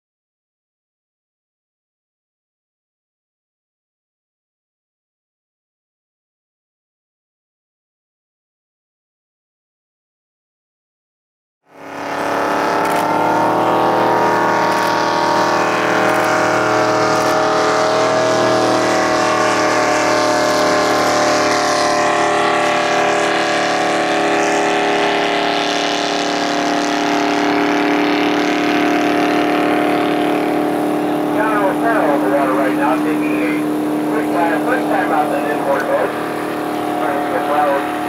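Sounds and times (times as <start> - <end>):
racing boat engine at high revs: 11.6 - 38.0.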